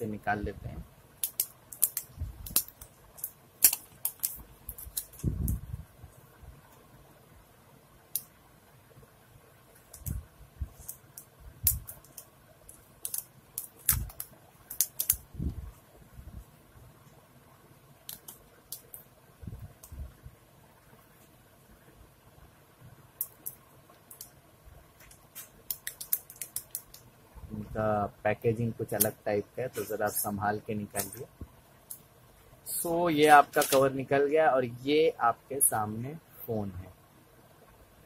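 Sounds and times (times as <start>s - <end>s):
plastic film crinkling: 1.2s - 5.5s, 11.7s - 15.2s.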